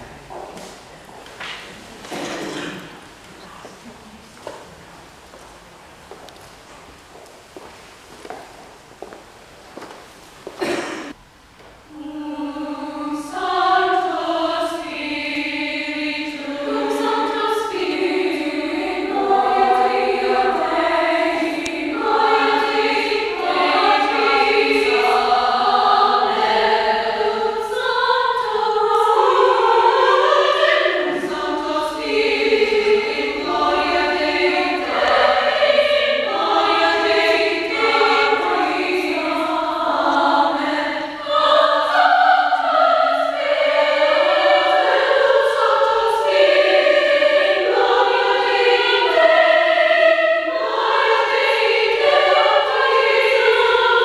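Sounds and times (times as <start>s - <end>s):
choir singing in parts: 11.9s - 54.0s.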